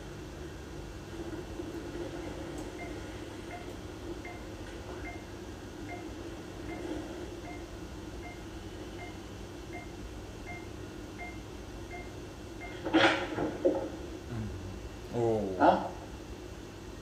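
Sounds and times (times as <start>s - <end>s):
low steady hum: 0.0s - 17.0s
patient monitor beeping: 2.1s - 13.4s.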